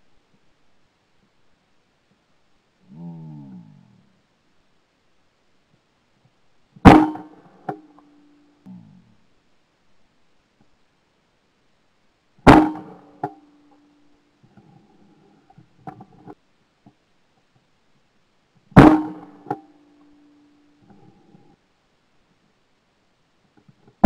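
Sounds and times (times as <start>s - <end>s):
shotgun shots: 6.9s - 7.4s, 12.5s - 13.2s, 18.8s - 19.6s.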